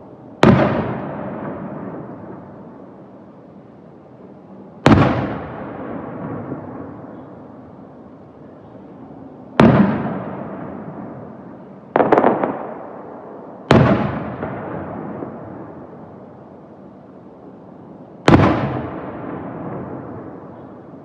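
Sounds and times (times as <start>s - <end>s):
firework shells booming: 0.4s - 2.5s, 4.8s - 7.1s, 9.6s - 11.4s, 12.0s - 15.9s, 18.2s - 20.5s
firework cracks: 9.6s - 10.6s, 12.0s - 15.9s, 18.3s - 19.0s.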